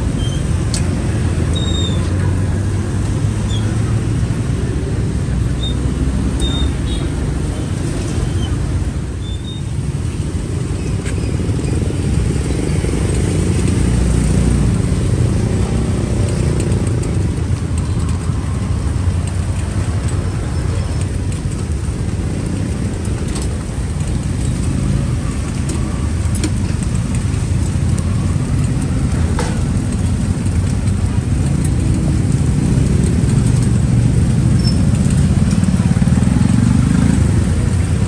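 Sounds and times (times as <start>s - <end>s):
traffic rumble: 0.0s - 38.0s
faint clicks and clatters: 10.5s - 38.0s.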